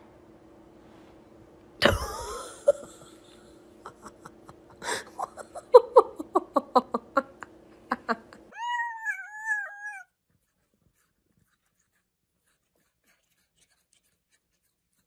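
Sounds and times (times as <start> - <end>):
person laughing: 1.8 - 8.6.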